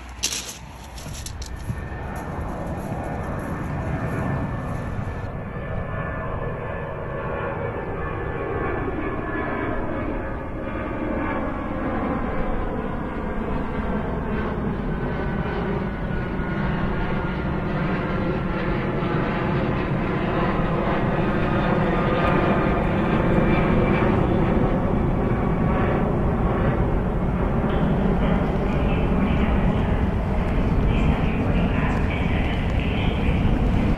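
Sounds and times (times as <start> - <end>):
mechanical engine-like drone: 0.0 - 5.5, 21.8 - 33.9.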